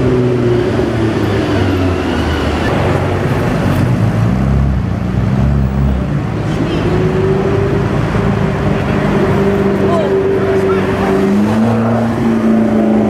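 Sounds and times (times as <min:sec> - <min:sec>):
city traffic: 0:00.0 - 0:13.0
sports car engines revving: 0:00.0 - 0:13.0.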